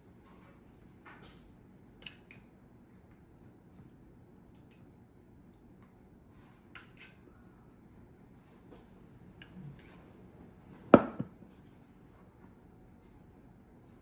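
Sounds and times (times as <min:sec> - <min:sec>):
cup knocking on wooden counter: 0:11.0 - 0:11.3.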